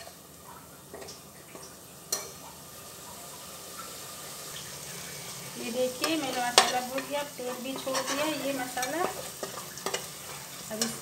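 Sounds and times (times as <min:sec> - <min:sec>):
spice paste sizzling in oil: 0:00.0 - 0:11.0
spoon clicking on pan: 0:02.1 - 0:02.4, 0:06.0 - 0:10.1, 0:10.8 - 0:11.0
spoon stirring and scraping: 0:05.9 - 0:11.0.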